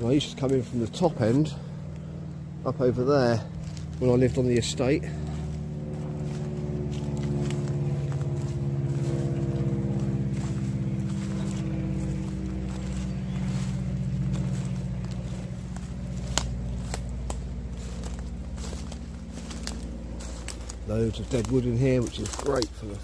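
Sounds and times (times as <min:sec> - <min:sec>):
distant engine humming: 0:00.0 - 0:23.0
footsteps crunching through leaves: 0:00.0 - 0:23.0
twig snapping: 0:14.2 - 0:22.8.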